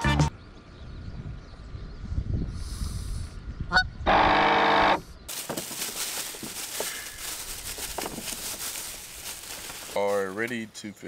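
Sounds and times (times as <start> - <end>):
loud honk-like call: 3.7 - 5.0
plastic bag crinkling: 5.3 - 10.2.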